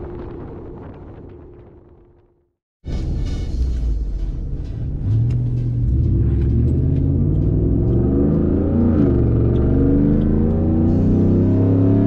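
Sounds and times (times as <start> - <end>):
car engine accelerating hard: 4.8 - 12.0.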